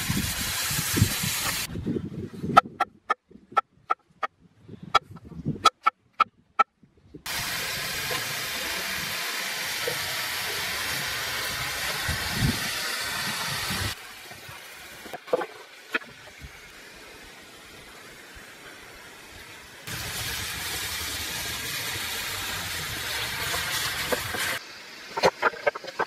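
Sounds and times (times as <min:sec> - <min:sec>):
mushrooms sizzling in skillet: 0:00.0 - 0:01.7, 0:07.3 - 0:15.2, 0:19.2 - 0:26.0.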